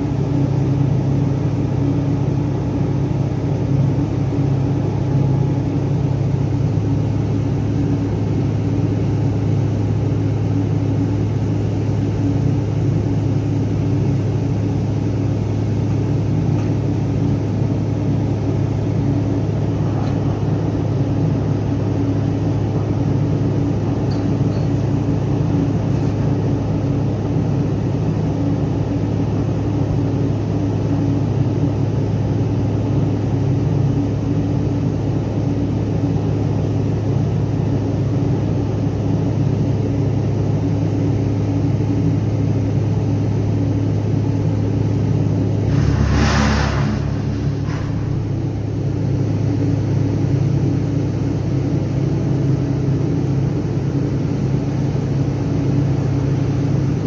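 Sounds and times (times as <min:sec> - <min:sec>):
diesel machinery droning: 0:42.6 - 0:57.0
brief hiss: 0:45.7 - 0:48.5.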